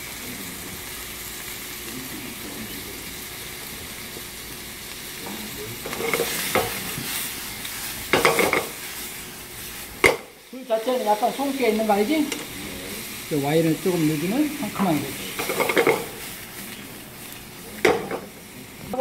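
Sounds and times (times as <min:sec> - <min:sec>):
oysters sizzling in a frying pan: 0:00.0 - 0:19.0.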